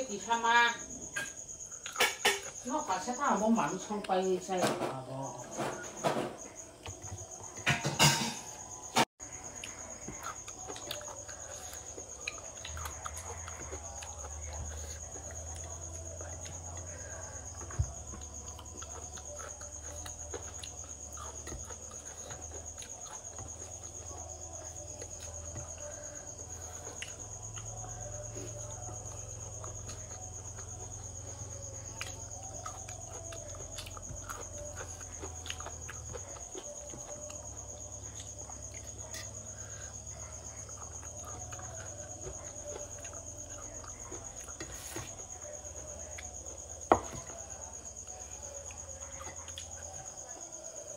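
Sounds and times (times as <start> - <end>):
high-pitched insect trill: 0.0 - 50.9.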